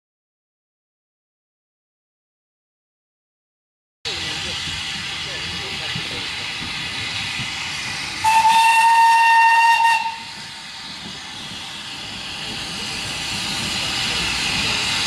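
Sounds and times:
steady steam hiss: 0:04.1 - 0:15.0
steam locomotive whistle: 0:08.2 - 0:10.5.

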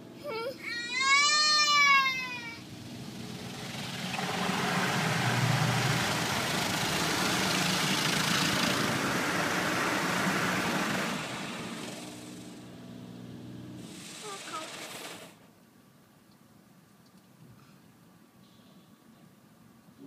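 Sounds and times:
car wash rushing noise: 0:01.2 - 0:15.5.

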